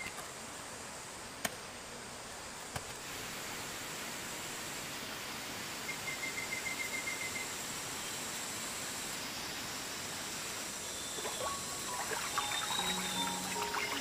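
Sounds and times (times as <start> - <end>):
rural ambience hiss: 0.0 - 14.0
faint music: 11.1 - 14.0.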